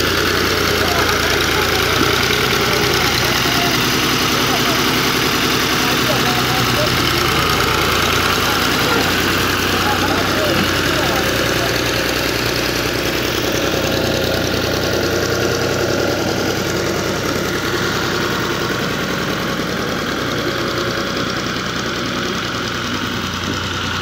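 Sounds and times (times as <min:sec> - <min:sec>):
tractor engine running: 0:00.0 - 0:24.0.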